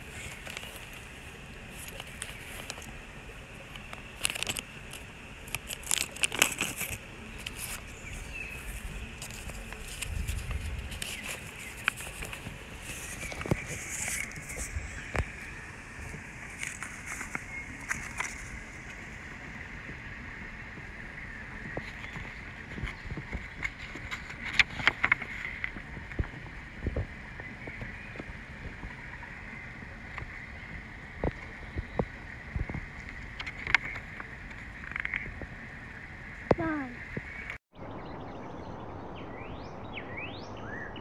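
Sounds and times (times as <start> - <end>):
paper rustling and crackling: 0.0 - 3.0, 3.6 - 19.0, 21.8 - 26.3
steady background hiss: 0.0 - 37.6.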